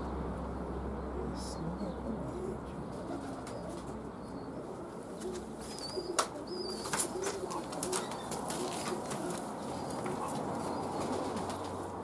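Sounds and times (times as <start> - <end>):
pigeons cooing: 1.2 - 12.0
wing flaps: 5.2 - 11.9.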